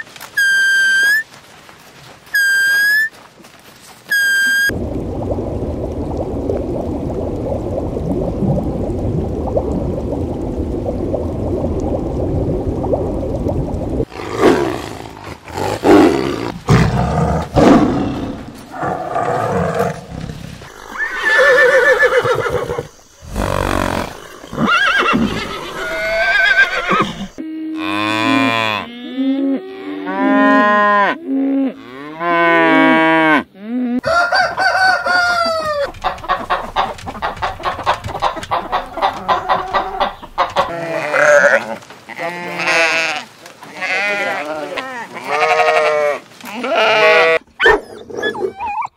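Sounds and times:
animal calls and cries: 0:00.0 - 0:01.4, 0:02.3 - 0:03.2, 0:33.9 - 0:48.9
chickens calling: 0:34.0 - 0:41.6.

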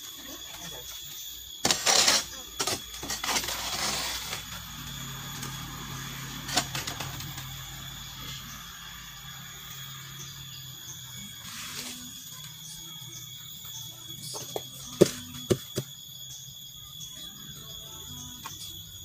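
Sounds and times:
hand scoop scraping wet mortar: 0:01.7 - 0:04.5.

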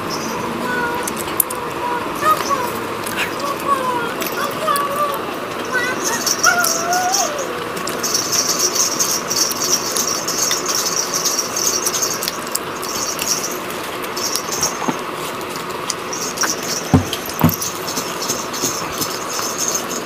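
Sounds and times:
people eating with spoons: 0:00.0 - 0:20.0
steady high-pitched hiss: 0:00.0 - 0:20.0
dull thumps: 0:16.9 - 0:17.7.

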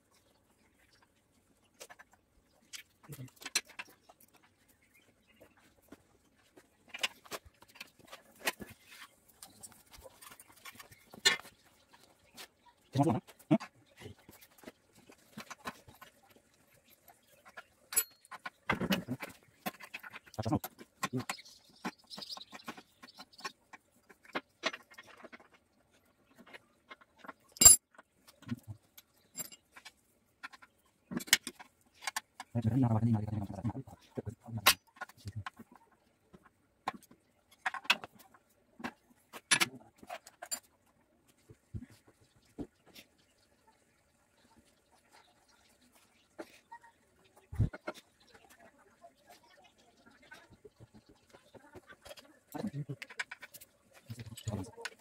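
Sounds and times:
hand tools clinking on metal: 0:17.9 - 0:21.4, 0:27.5 - 0:27.9, 0:29.3 - 0:29.8.

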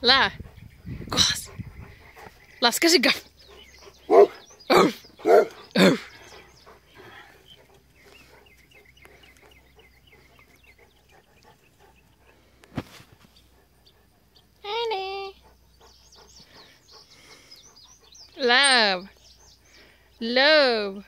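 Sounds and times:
dog barking deeply: 0:04.1 - 0:06.2.

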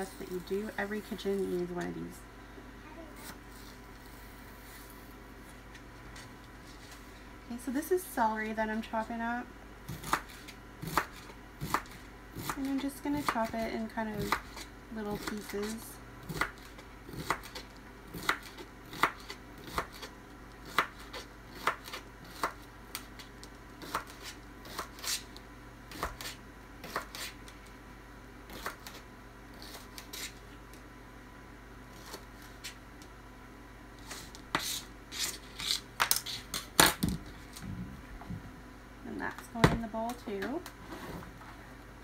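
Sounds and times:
knife chopping celery: 0:09.9 - 0:13.6, 0:14.2 - 0:23.1, 0:23.8 - 0:25.2, 0:25.9 - 0:27.4.

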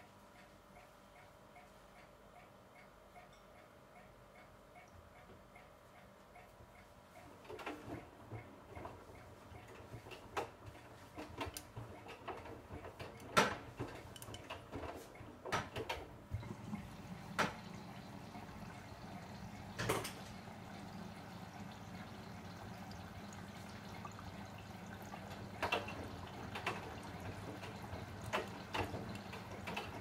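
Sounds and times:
water sloshing in washing machine: 0:07.4 - 0:30.0.

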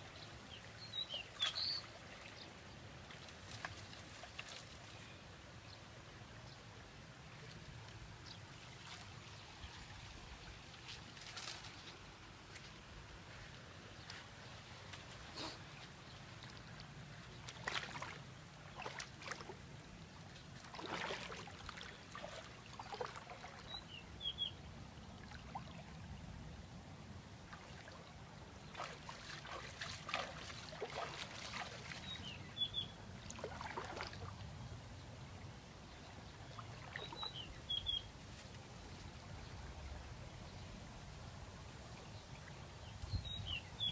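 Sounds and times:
muddy water splashing: 0:14.0 - 0:24.0, 0:27.5 - 0:34.6, 0:36.3 - 0:38.0.

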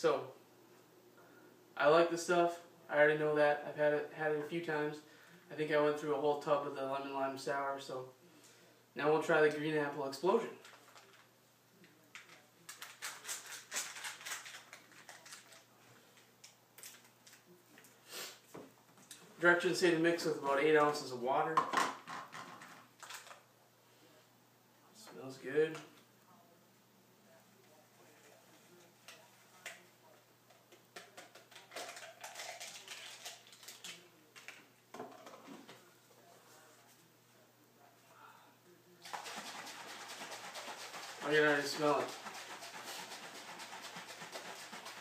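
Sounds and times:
powder packet tearing and crinkling: 0:12.2 - 0:15.7, 0:31.0 - 0:34.6
scoop scraping plastic cup: 0:39.0 - 0:45.0.

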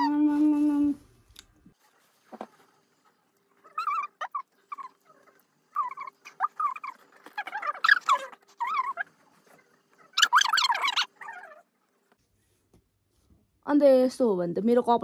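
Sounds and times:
small animal squeaking: 0:03.6 - 0:11.7.

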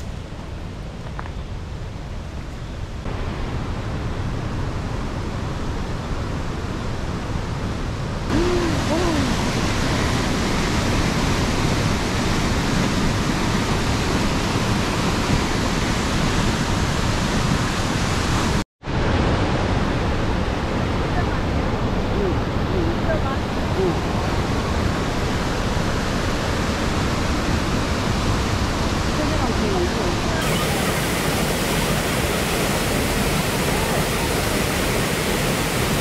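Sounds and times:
river rapids rushing: 0:20.8 - 0:36.0.

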